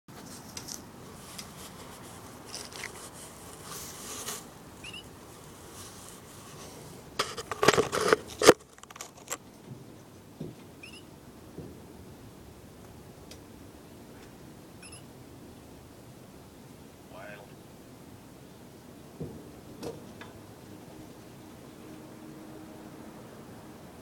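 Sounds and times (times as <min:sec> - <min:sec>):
faint high chirps: 0:04.8 - 0:05.1, 0:10.8 - 0:11.1, 0:14.8 - 0:15.1
phone handling rustling: 0:07.2 - 0:09.4.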